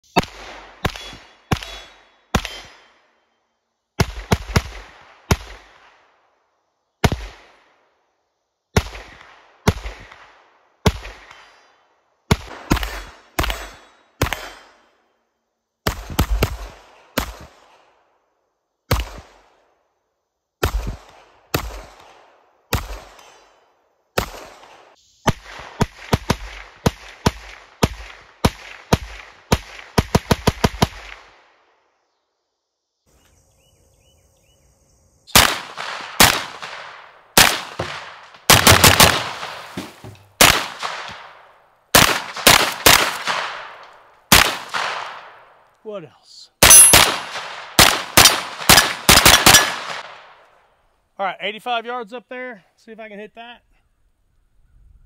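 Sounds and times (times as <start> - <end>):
gunshots with echo: 0.1 - 2.9, 12.3 - 14.9, 20.6 - 23.6, 24.2 - 31.3, 35.3 - 45.5, 46.6 - 50.4.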